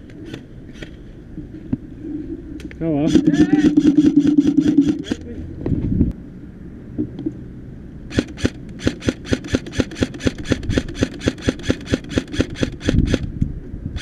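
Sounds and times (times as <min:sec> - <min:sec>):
airsoft rifle shots: 0:03.0 - 0:05.3, 0:08.1 - 0:13.3.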